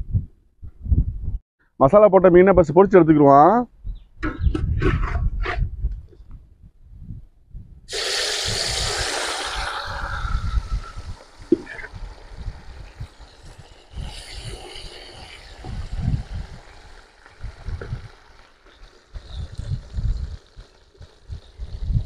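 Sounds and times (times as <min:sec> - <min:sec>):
fish sizzling in hot oil: 0:07.9 - 0:21.8.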